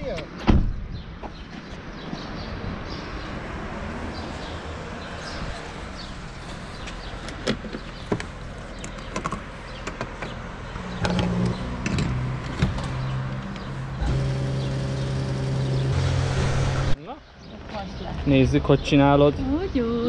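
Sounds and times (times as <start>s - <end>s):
fuel pump motor humming: 13.5s - 17.0s.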